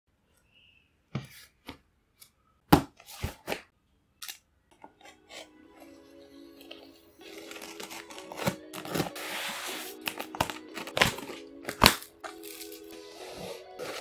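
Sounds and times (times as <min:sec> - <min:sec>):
soft background music: 0:04.6 - 0:14.0.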